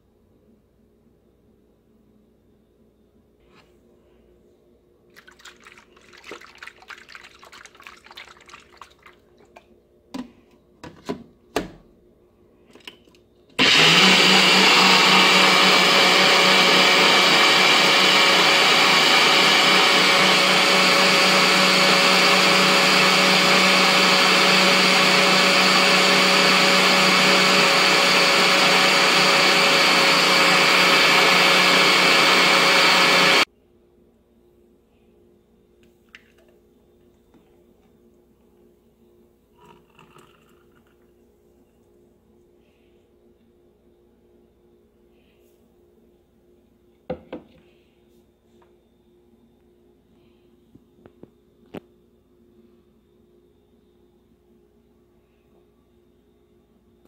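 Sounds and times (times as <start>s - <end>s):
blender motor running: 13.6s - 33.5s.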